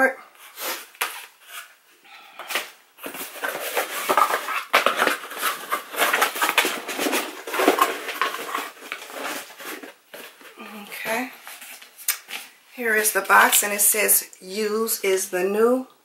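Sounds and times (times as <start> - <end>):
cardboard and packing paper crinkling: 0.4 - 1.8, 2.4 - 13.6.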